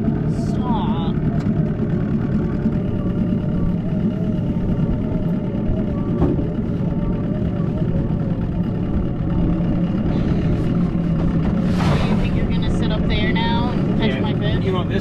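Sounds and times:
outboard motor running: 0:00.0 - 0:15.0.

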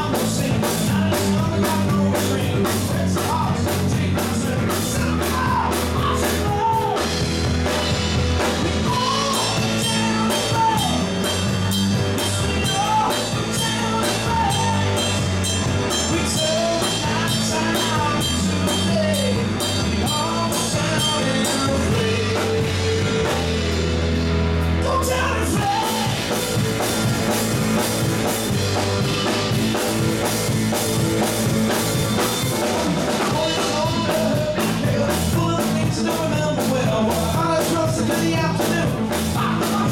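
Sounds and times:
person singing: 0:00.0 - 0:07.3, 0:08.4 - 0:23.7, 0:24.7 - 0:26.6, 0:33.1 - 0:39.9
live rock band playing: 0:00.0 - 0:39.9.

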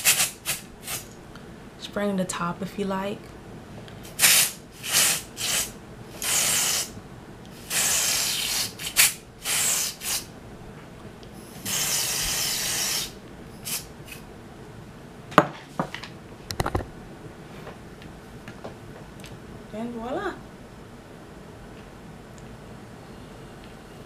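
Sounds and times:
spray can hissing: 0:00.0 - 0:01.1, 0:04.1 - 0:07.0, 0:07.6 - 0:10.3, 0:11.6 - 0:14.2
sharp clicks and knocks: 0:16.5 - 0:16.9.

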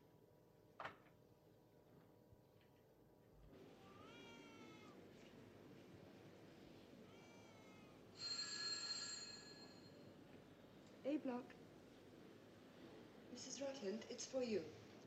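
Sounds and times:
telephone ringing: 0:08.1 - 0:10.1.

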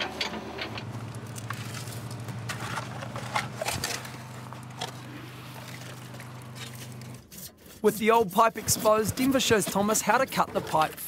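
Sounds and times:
low engine hum: 0:00.2 - 0:07.2
shovels digging into gravel: 0:01.3 - 0:07.0.

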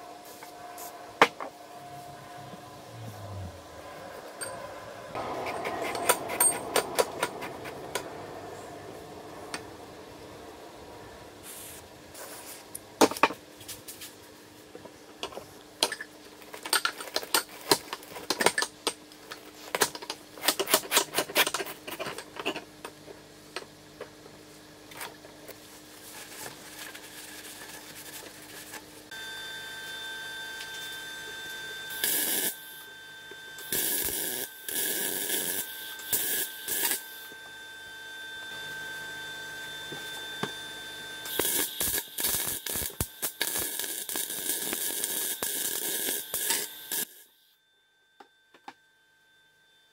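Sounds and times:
steady hum: 0:00.0 - 0:15.7
welding crackle: 0:31.9 - 0:32.8, 0:33.6 - 0:37.3, 0:41.2 - 0:47.3.

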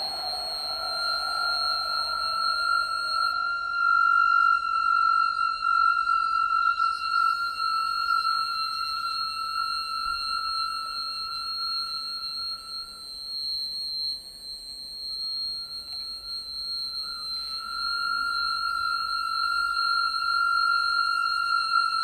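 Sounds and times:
high ringing electronic tone: 0:00.0 - 0:14.1.

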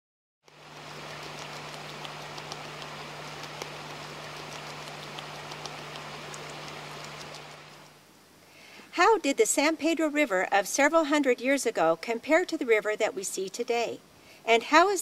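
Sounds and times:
sharp little clicks: 0:00.5 - 0:07.9
flowing river water: 0:00.5 - 0:08.0
low steady hum: 0:00.5 - 0:15.0.

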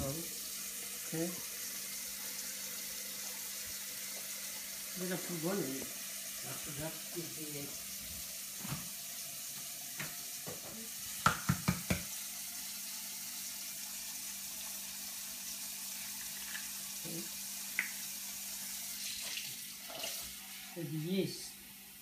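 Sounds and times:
egg knocking against bowl: 0:11.2 - 0:12.1.

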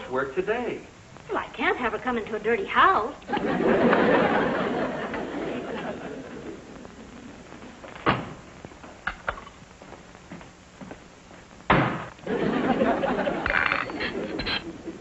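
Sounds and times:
audience laughter: 0:03.3 - 0:06.8, 0:12.2 - 0:15.0
sharp knock: 0:11.7 - 0:12.1.

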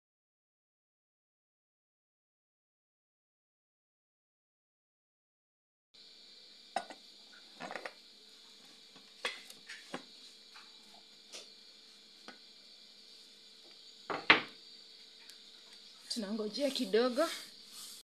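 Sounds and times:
faint steady hiss: 0:06.0 - 0:18.0.

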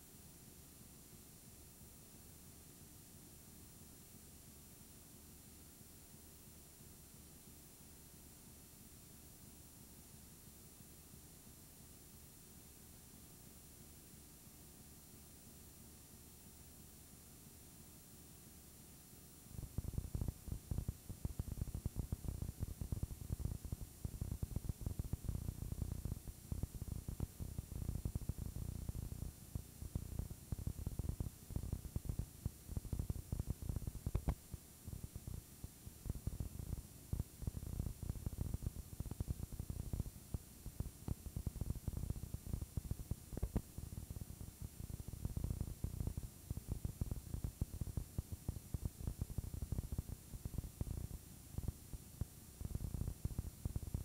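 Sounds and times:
faint hiss: 0:00.0 - 0:54.0
videotape static crackle: 0:19.4 - 0:54.0.

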